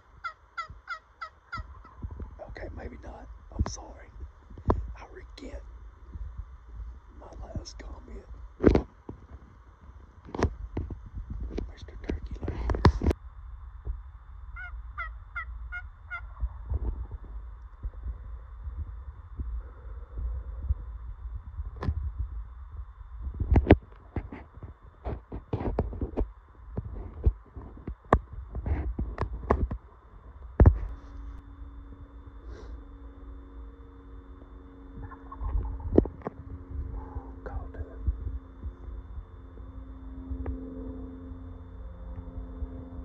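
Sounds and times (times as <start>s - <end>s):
faint steady hum: 0.0s - 43.0s
low rumble: 0.0s - 43.0s
turkey yelps: 0.2s - 2.0s, 14.6s - 16.4s.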